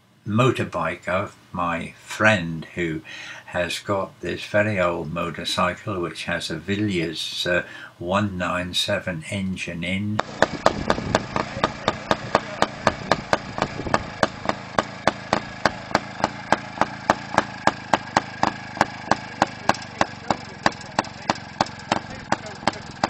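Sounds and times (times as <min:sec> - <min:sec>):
motorcycle engine idling: 0:10.2 - 0:23.0.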